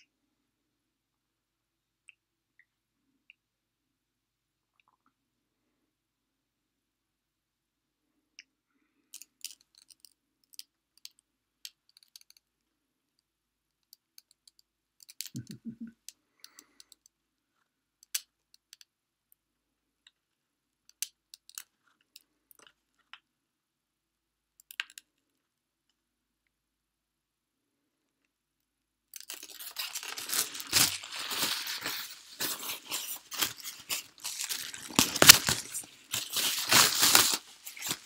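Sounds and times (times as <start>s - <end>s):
plastic bottle crinkling: 29.2s - 38.0s.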